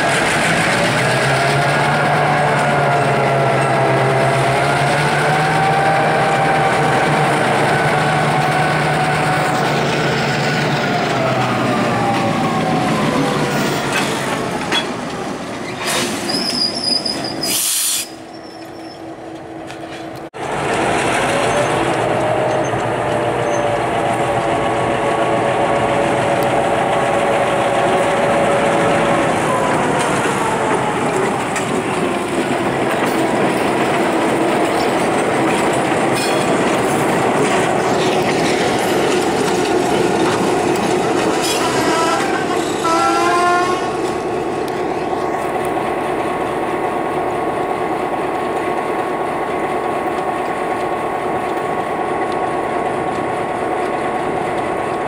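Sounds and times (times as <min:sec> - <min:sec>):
train wheel and rail noise: 0:00.0 - 0:55.0
long wheel squeal: 0:15.6 - 0:19.2, 0:23.4 - 0:23.9.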